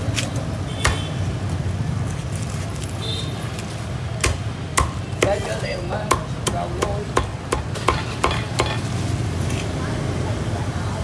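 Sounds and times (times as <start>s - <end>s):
cleaver chopping on wooden block: 4.2s - 8.8s.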